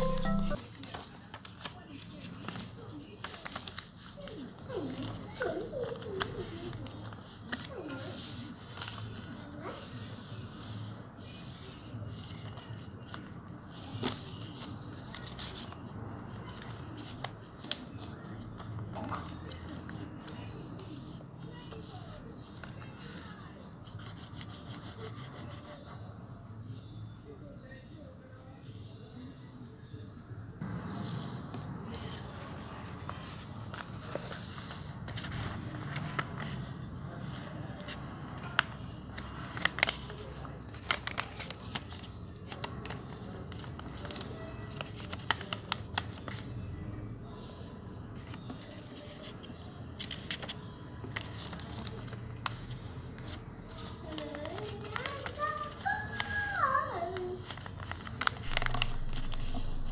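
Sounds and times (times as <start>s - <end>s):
paper crackle: 0.0s - 20.3s, 39.3s - 46.5s, 50.0s - 52.6s, 53.2s - 59.9s
paper being folded by hand: 0.0s - 26.0s, 31.1s - 36.7s, 38.6s - 46.5s, 48.2s - 59.9s
low background noise: 0.0s - 59.9s.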